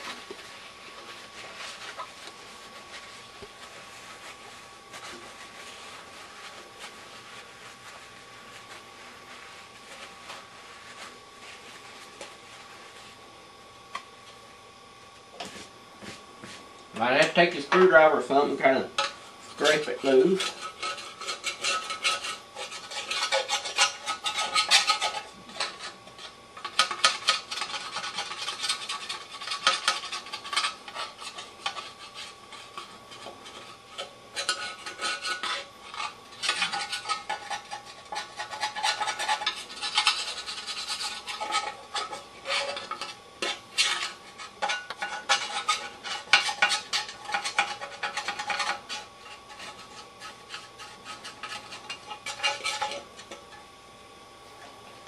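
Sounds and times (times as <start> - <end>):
screwdriver scraping metal: 17.0 - 53.4.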